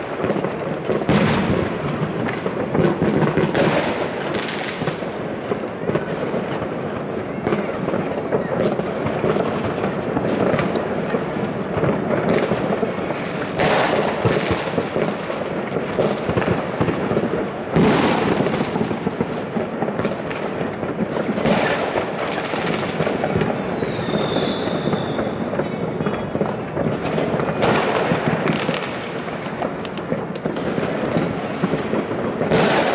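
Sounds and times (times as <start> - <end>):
fireworks crackling and popping: 0.0 - 32.9
loud firework bangs: 0.0 - 32.9
firework whistle: 19.9 - 32.9.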